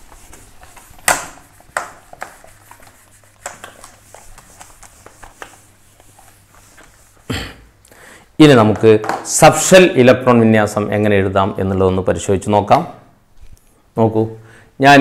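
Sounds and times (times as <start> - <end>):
duster wiping on whiteboard: 0.0 - 7.3.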